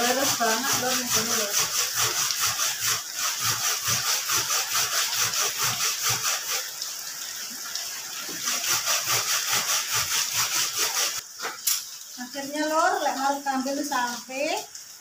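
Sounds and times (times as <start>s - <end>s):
coconut grated on metal grater: 0.0s - 6.6s, 8.5s - 11.2s.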